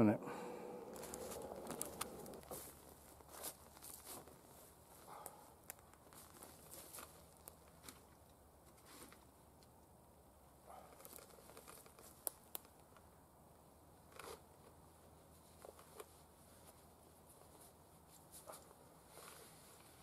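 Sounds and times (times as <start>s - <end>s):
rucksack rustling: 0.4s - 5.3s.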